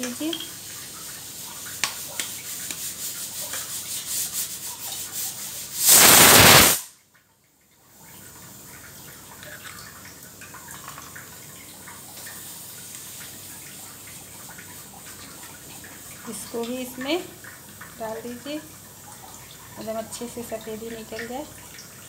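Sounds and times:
burst of rushing noise: 5.8 - 6.9.

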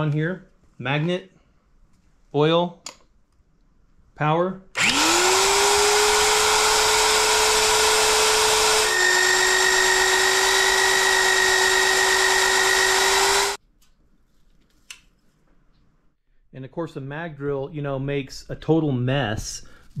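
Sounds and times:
magnetic drill motor whine: 4.8 - 13.6.

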